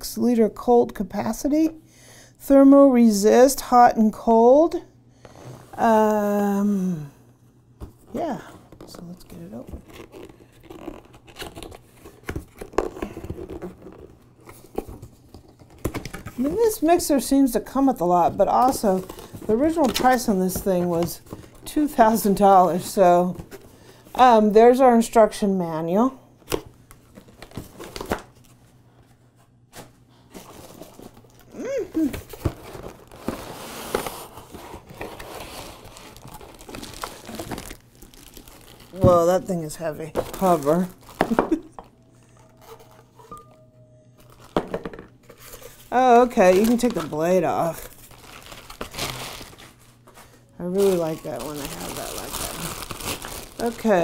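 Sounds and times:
cardboard and plastic rustling: 0:07.8 - 0:24.3, 0:26.4 - 0:43.3, 0:44.2 - 0:54.0
packing tape tearing: 0:09.8 - 0:14.9, 0:32.1 - 0:39.0, 0:46.5 - 0:49.9, 0:50.7 - 0:54.0.

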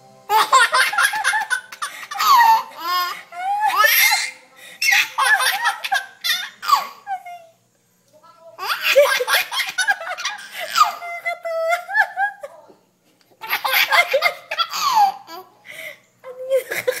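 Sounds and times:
baby laughing: 0:00.3 - 0:07.3, 0:08.6 - 0:12.3, 0:13.4 - 0:15.5.

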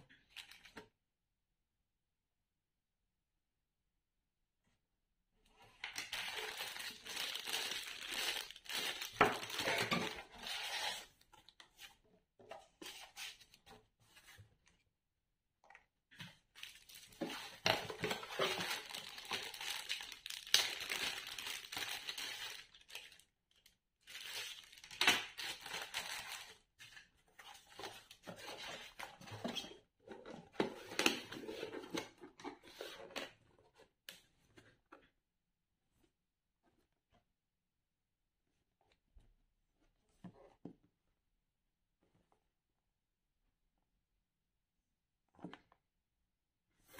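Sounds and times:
plastic bags crinkling: 0:06.2 - 0:10.1, 0:17.7 - 0:23.2.

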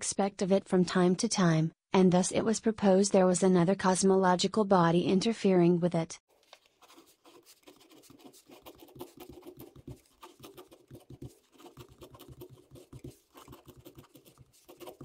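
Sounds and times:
pen scratching on paper: 0:06.8 - 0:15.0.

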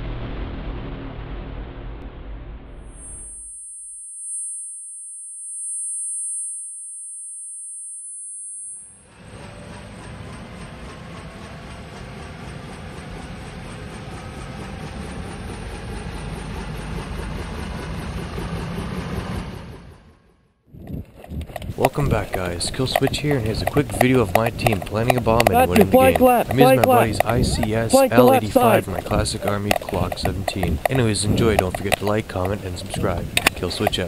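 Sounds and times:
high-pitched whine: 0:02.7 - 0:09.2
rumbling engine-like noise: 0:09.1 - 0:34.0.

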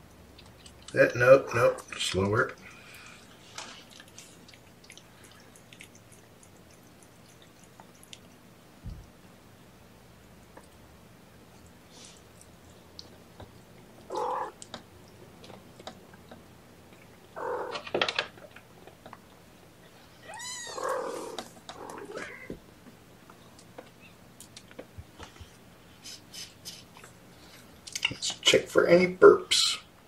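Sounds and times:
cats meowing: 0:14.1 - 0:14.6, 0:17.4 - 0:17.8, 0:20.1 - 0:22.6.

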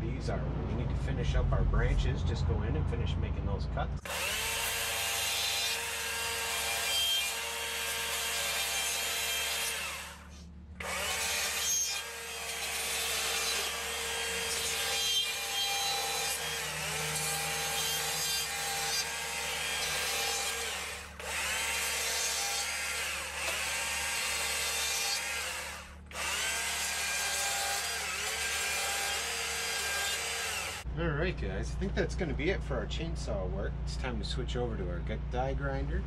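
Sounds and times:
chainsaw cutting wood: 0:04.0 - 0:30.8.

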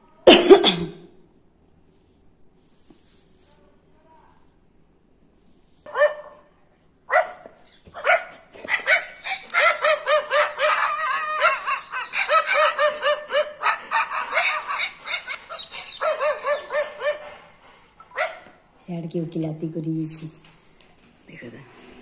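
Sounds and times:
dog barking through phone speaker: 0:05.9 - 0:06.5, 0:07.1 - 0:11.6.

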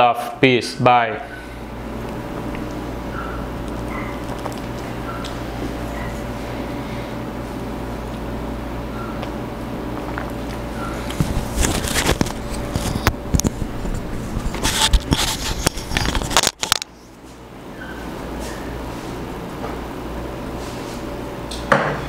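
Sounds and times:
steady hum: 0:00.0 - 0:22.0
microphone rustling against shirt: 0:11.1 - 0:16.3.

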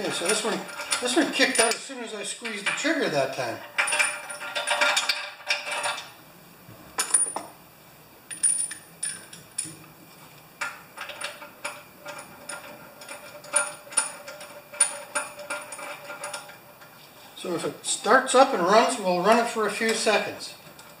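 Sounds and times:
small metallic clicks and clinks: 0:00.1 - 0:01.8, 0:08.3 - 0:09.8.

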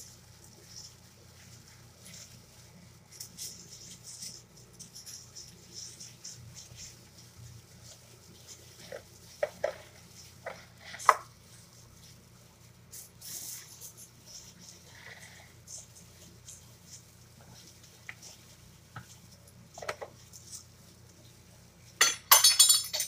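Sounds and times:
plastic gloves crinkling: 0:00.0 - 0:22.0.

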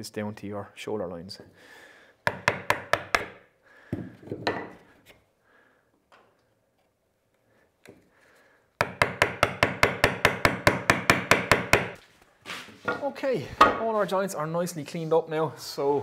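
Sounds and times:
mallet striking chisel: 0:02.3 - 0:03.4, 0:08.8 - 0:12.0.

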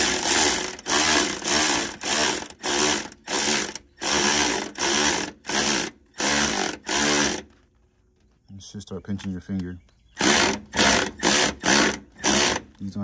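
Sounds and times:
cordless ratchet bursts: 0:00.0 - 0:07.6, 0:10.2 - 0:12.8.

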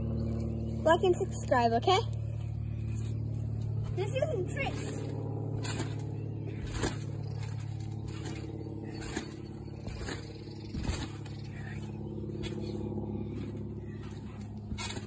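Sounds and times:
low engine-like hum: 0:00.0 - 0:15.0
thumps on trampoline mat: 0:06.6 - 0:11.2.

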